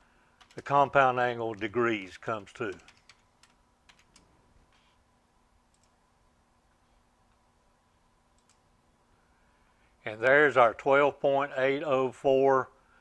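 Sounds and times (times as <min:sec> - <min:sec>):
faint steady hum: 0:00.0 - 0:13.0
computer keyboard clicks: 0:02.6 - 0:04.3, 0:05.7 - 0:06.0, 0:08.4 - 0:08.6.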